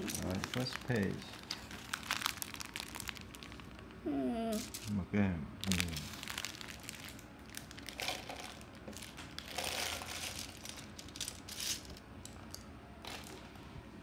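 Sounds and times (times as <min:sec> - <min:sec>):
plastic toy bricks rattling in basket: 0:05.6 - 0:12.0.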